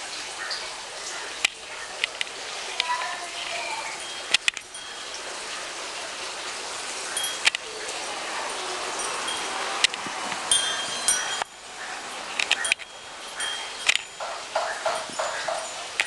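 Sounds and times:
wind rustling: 0.0s - 16.0s
wind chime tinkling: 3.0s - 5.8s, 7.1s - 16.0s.

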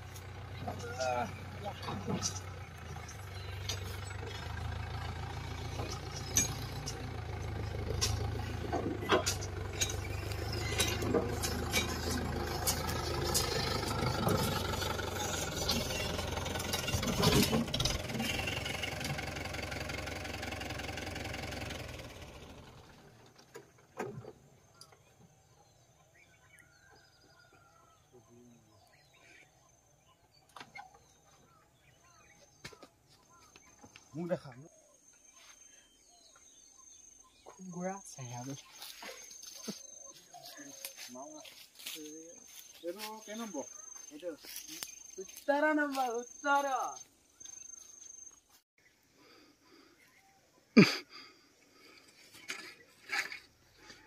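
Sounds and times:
engine knocks and clanks: 0.0s - 28.0s, 51.7s - 54.0s
tractor diesel engine running: 0.0s - 28.0s, 36.0s - 48.6s, 51.6s - 54.0s
faint bird chirps: 24.7s - 54.0s.

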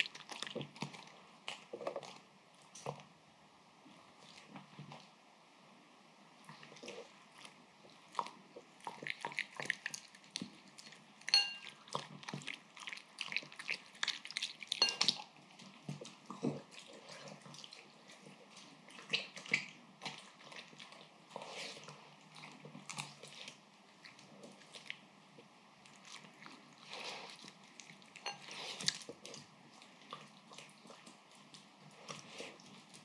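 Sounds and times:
dog lapping and chewing: 6.5s - 25.1s, 25.9s - 33.0s.

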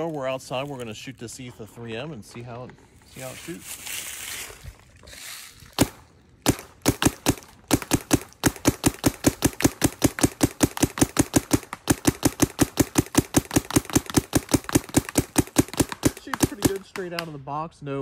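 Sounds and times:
paintball marker firing: 5.8s - 17.4s.

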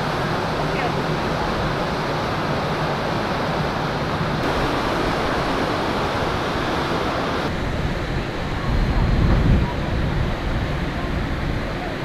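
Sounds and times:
churned water rushing: 0.0s - 12.0s
wind rushing: 4.3s - 11.7s.

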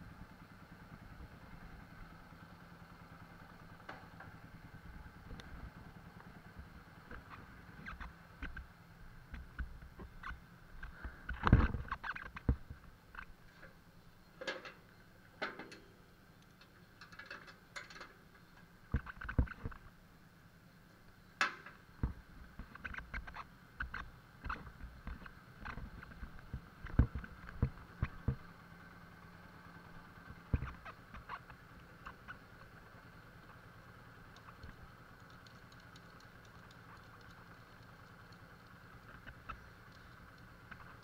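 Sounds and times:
faint steady hum: 0.0s - 41.0s
motorcycle knocks and clunks: 3.8s - 4.4s, 14.4s - 14.8s, 15.4s - 16.0s, 16.6s - 19.8s, 21.4s - 28.5s, 30.3s - 33.6s.

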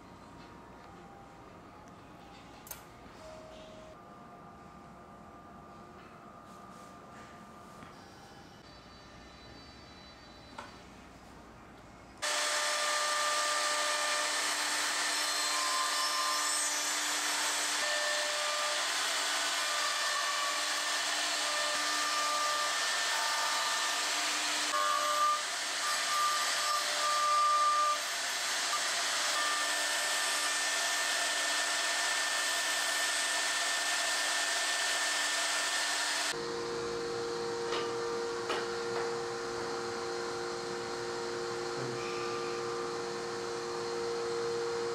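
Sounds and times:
drilling motor whining hiss: 12.2s - 36.4s, 38.8s - 44.9s.

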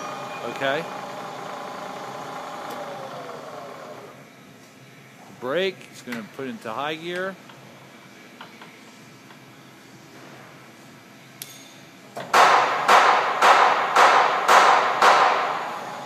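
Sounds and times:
loud metallic knocking from mill: 12.4s - 15.6s.

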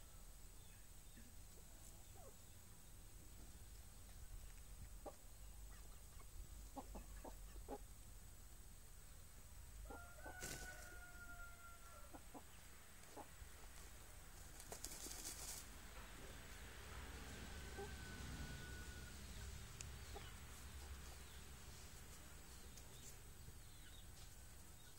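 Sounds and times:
chickens clucking: 0.6s - 2.6s, 3.4s - 8.0s, 9.8s - 24.9s
rooster crowing: 9.8s - 12.1s, 17.5s - 19.4s
wings flicking dust: 13.8s - 15.7s.

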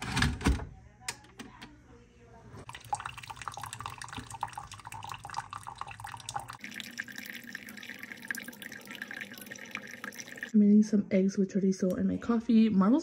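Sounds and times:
coffee pouring into a mug: 2.6s - 10.5s.

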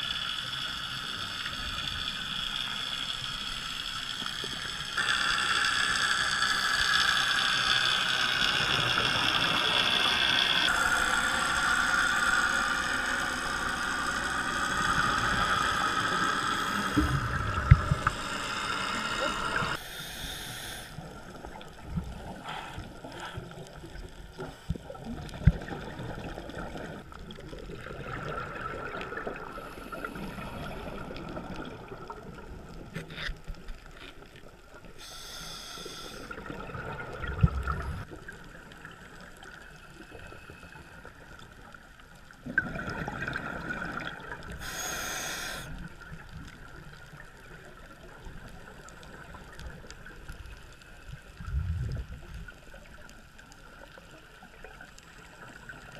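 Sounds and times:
regulator bubbles gurgling underwater: 0.0s - 19.8s, 21.0s - 35.2s, 36.2s - 55.9s
breath hiss: 14.8s - 21.1s, 35.0s - 36.4s, 44.5s - 45.9s.

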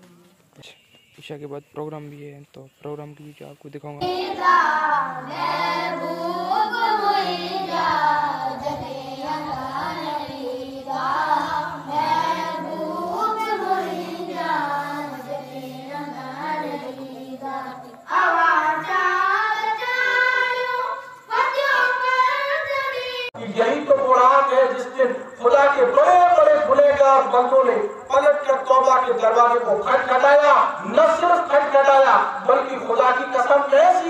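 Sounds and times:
person chanting melodically: 4.0s - 21.6s.

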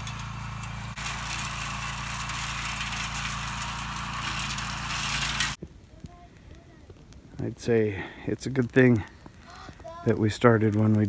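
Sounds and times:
brush mower engine running: 0.0s - 5.6s.

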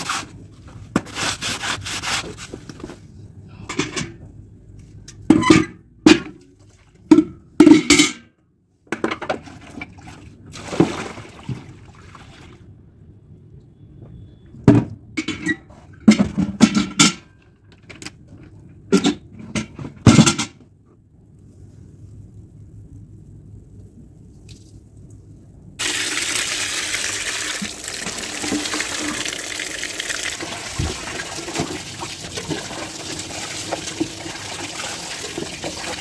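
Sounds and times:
water splash: 10.5s - 12.6s
washtubs and bucket knocking: 27.6s - 36.0s.

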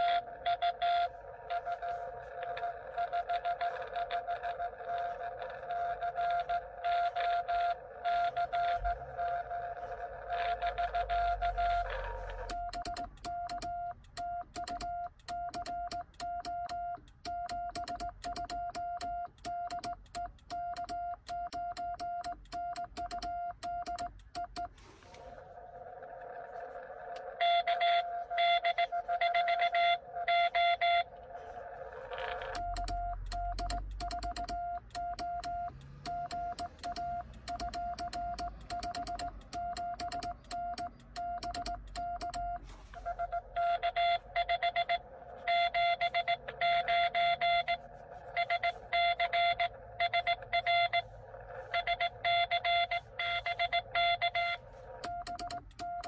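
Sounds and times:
morse code sidetone beeps: 0.0s - 24.8s, 27.2s - 31.2s, 32.4s - 56.0s
morse code from radio speaker: 0.0s - 25.4s, 27.2s - 56.0s
morse key contacts clicking: 12.4s - 24.8s, 32.5s - 42.6s, 55.0s - 56.0s.

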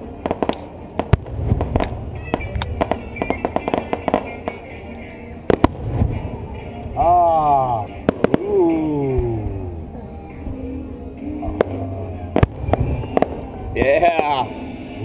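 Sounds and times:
fireworks popping and crackling: 0.0s - 9.5s, 11.5s - 15.0s
deep rumbling fireworks booms: 0.2s - 4.7s, 5.5s - 10.0s, 11.5s - 14.3s.

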